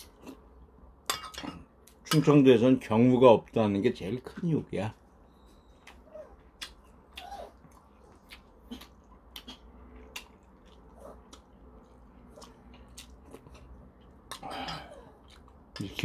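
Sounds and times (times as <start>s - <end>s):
man chewing and sipping: 5.8s - 15.8s.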